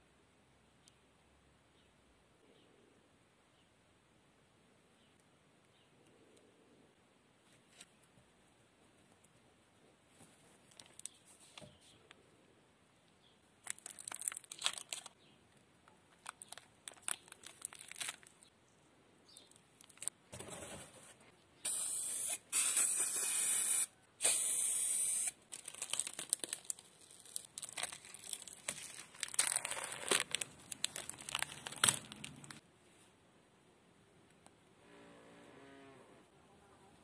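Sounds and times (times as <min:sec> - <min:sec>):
plastic film crinkling and tearing: 0:10.6 - 0:11.4, 0:13.6 - 0:15.2, 0:16.1 - 0:18.5, 0:19.4 - 0:20.2, 0:25.2 - 0:32.6
aerosol spray can hissing: 0:21.7 - 0:25.4.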